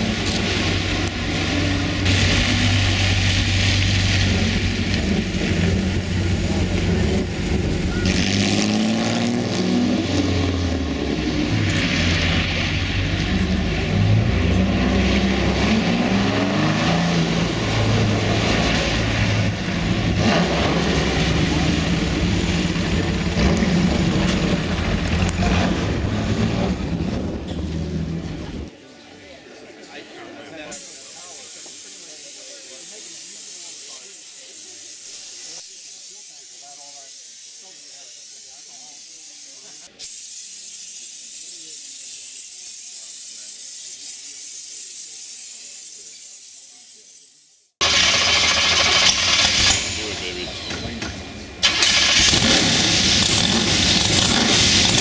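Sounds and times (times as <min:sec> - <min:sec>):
car engine running: 0:17.4 - 0:28.7
tyre spray hissing: 0:30.7 - 0:47.7.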